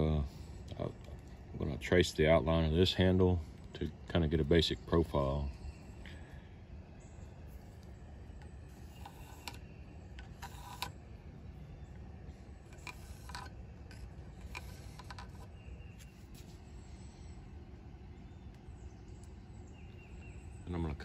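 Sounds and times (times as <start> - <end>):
low background noise: 0.0 - 21.0
pencil scratching on wood: 10.4 - 10.9.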